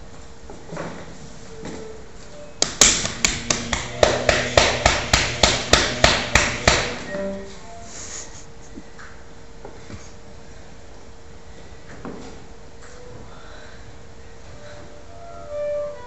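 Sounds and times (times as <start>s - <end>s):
low steady hum: 0.0s - 16.0s
sharp hammer-like knocks: 2.6s - 7.0s.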